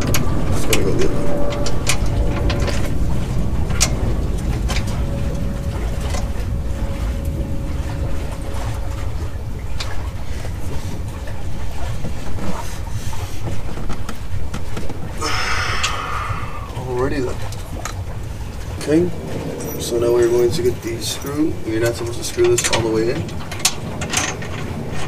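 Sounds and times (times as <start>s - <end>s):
low background rumble: 0.0s - 25.0s.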